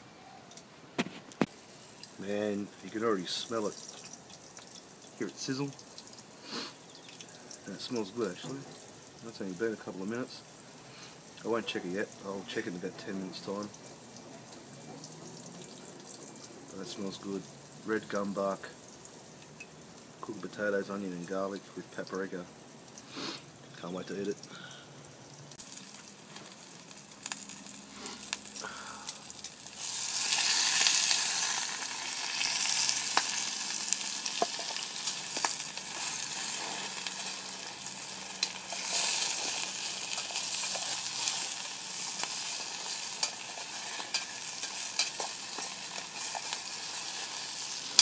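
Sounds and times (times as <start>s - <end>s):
vegetables sizzling in a tin: 1.4s - 48.0s.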